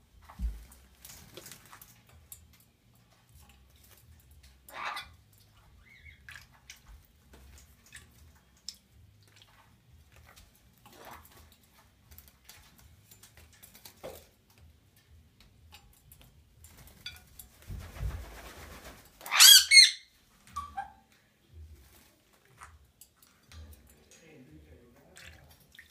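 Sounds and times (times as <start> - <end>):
parrot squawking: 4.6 - 5.2, 5.8 - 6.2, 19.2 - 21.0
noisy rustle: 17.5 - 19.2.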